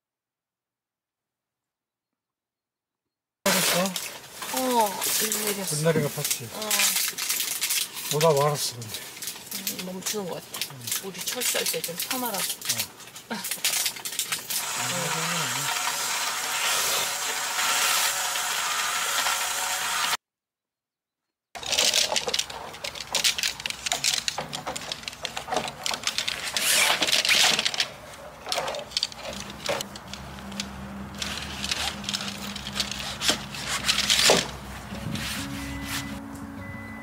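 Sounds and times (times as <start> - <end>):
camping gear clicks and knocks: 21.6 - 35.3.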